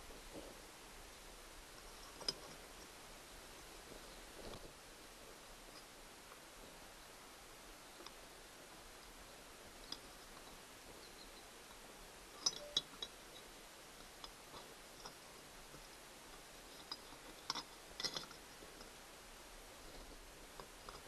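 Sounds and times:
metal plate clicking and clinking: 12.4s - 13.2s, 16.8s - 18.4s.

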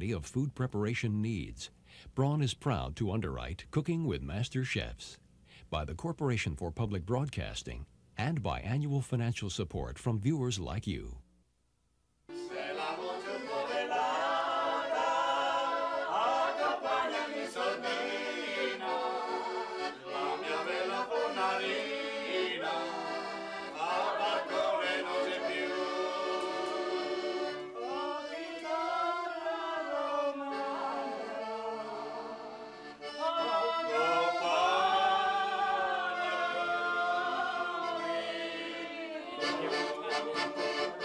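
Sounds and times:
accordion chords: 12.3s - 41.0s.

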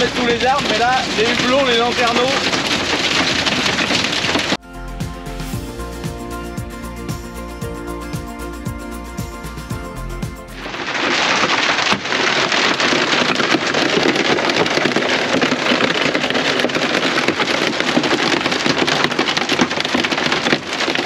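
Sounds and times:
hail and rain on a roof: 0.0s - 4.6s, 10.6s - 21.0s.

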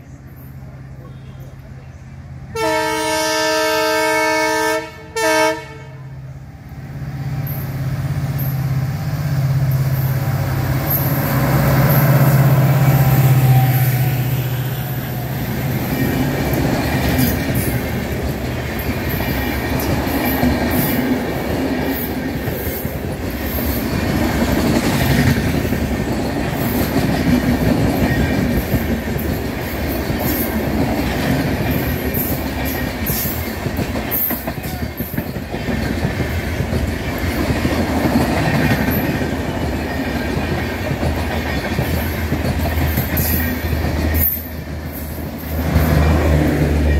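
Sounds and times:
train wheels clickety-clack: 9.5s - 46.9s.

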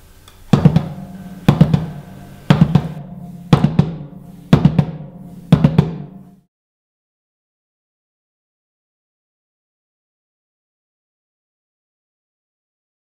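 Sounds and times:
drum beat with low ringing tone: 0.5s - 6.5s.

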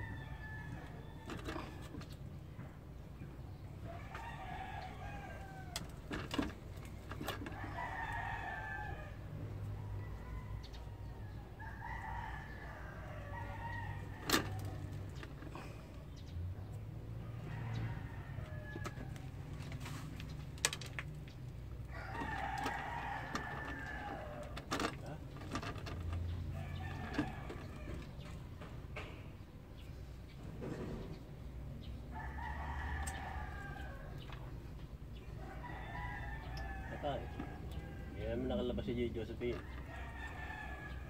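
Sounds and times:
rooster crowing: 0.0s - 1.9s, 3.8s - 6.4s, 7.2s - 15.7s, 17.2s - 19.5s, 21.8s - 25.2s, 26.4s - 28.6s, 32.1s - 34.3s, 35.2s - 38.8s, 39.5s - 41.0s.

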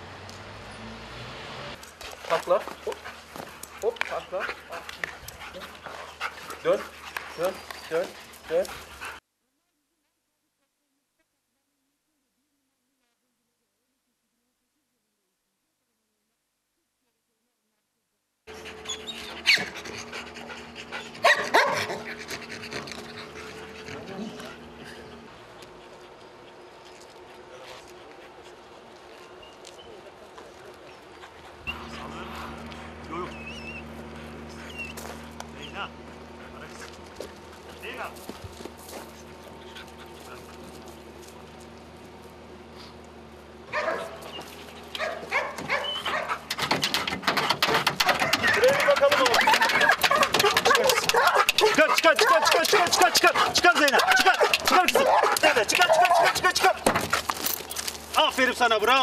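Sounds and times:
dogs panting: 1.8s - 9.2s, 18.5s - 59.0s
dog crying high: 18.5s - 20.3s, 20.9s - 23.1s, 43.7s - 46.4s, 48.0s - 56.4s.

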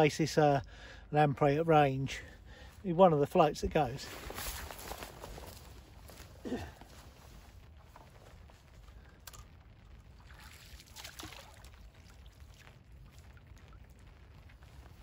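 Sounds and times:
water splash and drip: 9.2s - 15.0s.

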